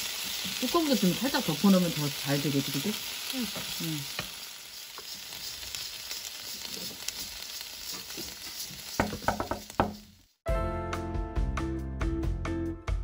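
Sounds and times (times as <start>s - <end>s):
vegetables sizzling in oil: 0.0s - 10.4s
spatula knocking pan: 7.9s - 10.2s
music: 10.4s - 13.0s.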